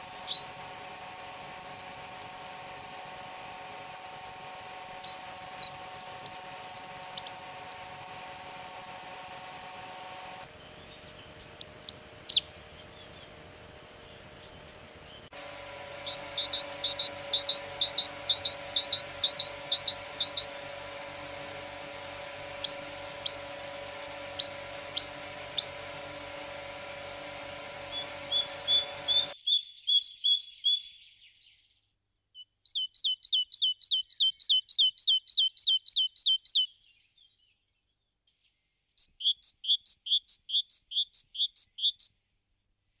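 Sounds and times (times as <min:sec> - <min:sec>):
faint steady hum: 0:00.0 - 0:29.4
great tits singing: 0:00.0 - 0:30.6.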